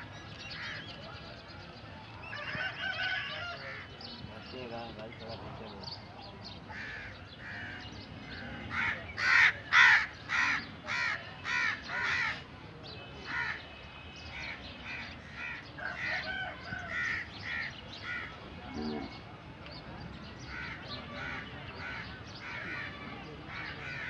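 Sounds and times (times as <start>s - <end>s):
crows cawing: 6.7s - 7.9s, 8.7s - 12.4s, 13.3s - 13.6s, 14.4s - 18.3s, 20.5s - 22.9s, 23.5s - 24.0s.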